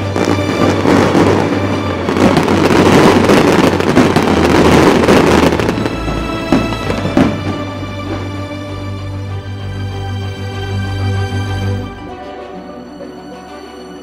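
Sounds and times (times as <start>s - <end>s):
fireworks crackling: 0.0s - 9.2s.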